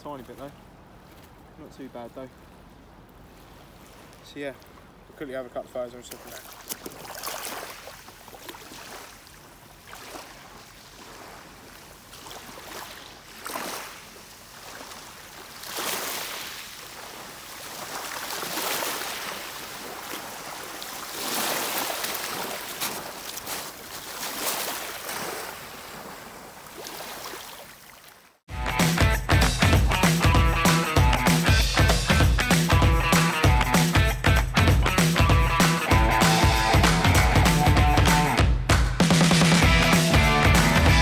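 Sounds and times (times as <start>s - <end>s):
small waves on shingle beach: 0.0s - 28.4s.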